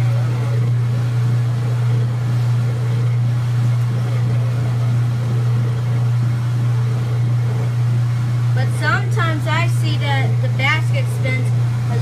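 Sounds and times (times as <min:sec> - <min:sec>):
washing machine spinning: 0:00.0 - 0:12.0.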